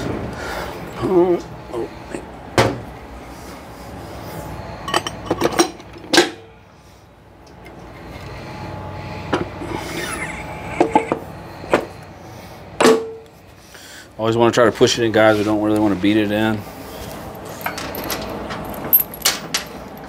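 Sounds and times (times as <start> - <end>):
metal parts clinking and knocking: 17.3 - 20.0.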